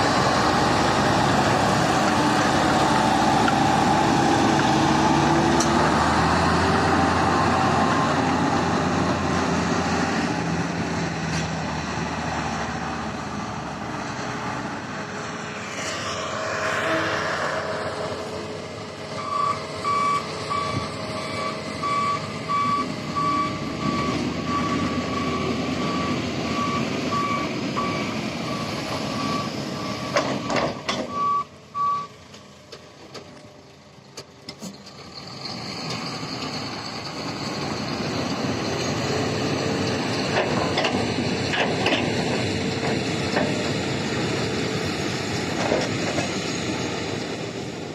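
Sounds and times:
diesel truck engine running: 17.2 - 30.2
reversing alarm beeping: 19.1 - 32.1.

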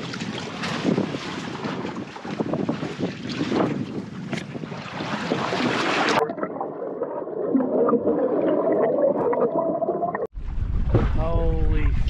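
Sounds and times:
wind: 0.0 - 6.2, 10.3 - 12.0
sea water against boat: 0.0 - 12.0
underwater water gurgling: 4.6 - 10.9.

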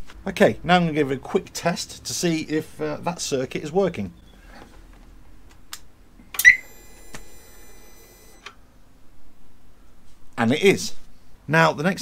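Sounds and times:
steady high-pitched tone: 6.4 - 8.4.

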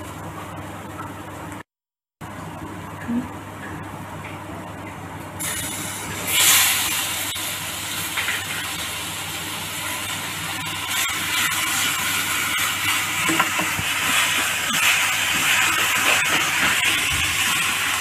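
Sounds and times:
food sizzling in hot oil: 5.4 - 18.0.

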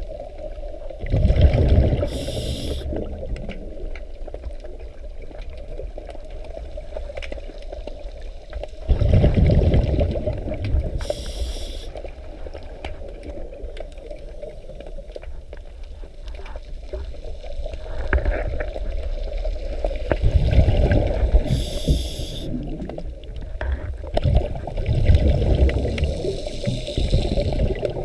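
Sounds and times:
exhaled bubbles underwater: 0.0 - 15.3, 16.9 - 28.0
regulator inhalation hiss: 2.1 - 3.0, 11.0 - 12.0, 21.4 - 22.6, 26.0 - 27.8.

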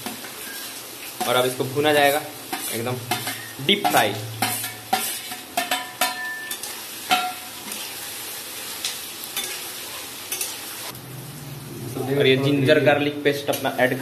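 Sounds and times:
onions sizzling in hot oil: 0.0 - 14.0
metal spatula scraping pan: 2.0 - 7.4.

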